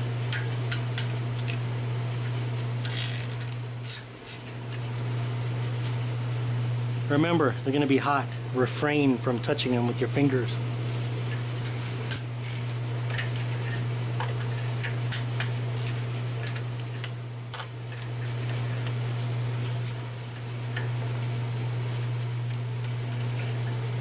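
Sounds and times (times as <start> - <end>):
cooler humming: 0.0 - 24.0
ratchet clicking: 2.8 - 4.4, 12.4 - 13.2.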